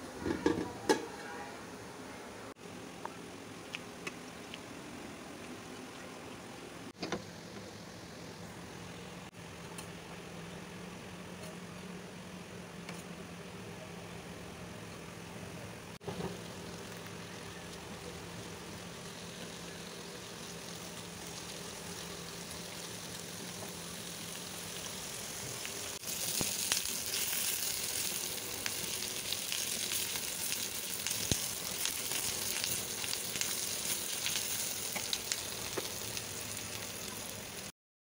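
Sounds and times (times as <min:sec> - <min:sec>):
oil crackling and popping: 0:16.0 - 0:37.7
vegetables sizzling in hot oil: 0:16.0 - 0:37.7.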